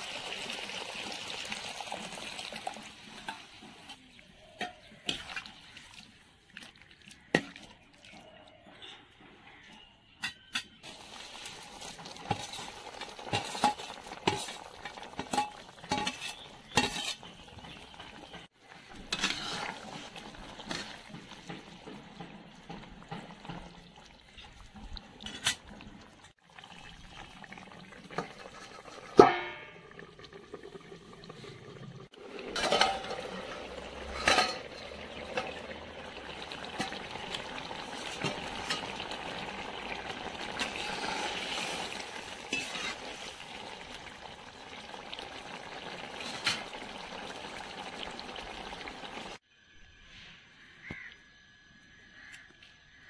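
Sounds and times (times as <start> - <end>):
curry bubbling: 0.0 - 8.6, 10.8 - 49.4
metal spatula scraping a pan: 12.2 - 17.8, 18.8 - 22.0, 32.4 - 35.5, 40.5 - 43.4.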